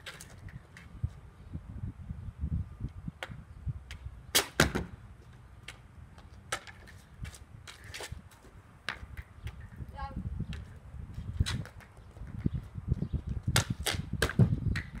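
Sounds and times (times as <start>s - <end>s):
hockey stick clicking on asphalt: 0.0s - 1.0s, 5.6s - 9.9s, 10.5s - 12.6s, 13.4s - 15.0s.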